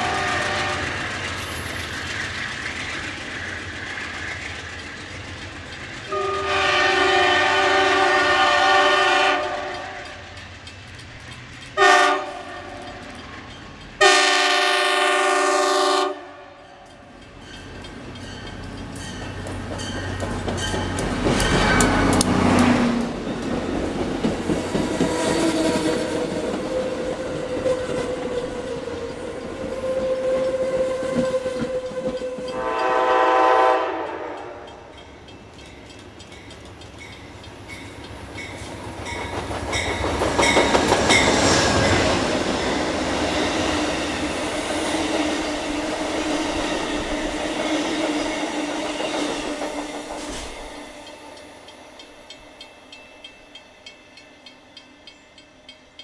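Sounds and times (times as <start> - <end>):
train horn blast: 0.0 - 1.0, 6.1 - 10.2, 11.8 - 12.9, 14.0 - 16.6, 25.1 - 34.8
wheels rolling on rails: 0.0 - 6.4, 9.4 - 14.0
train rumbling past: 0.0 - 56.0.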